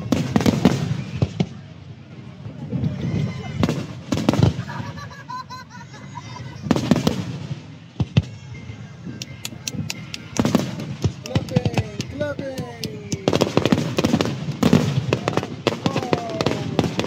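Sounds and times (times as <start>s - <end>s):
firework crackling pops: 0.0s - 1.6s, 9.2s - 17.0s
firework shells booming: 3.6s - 4.8s, 9.7s - 17.0s.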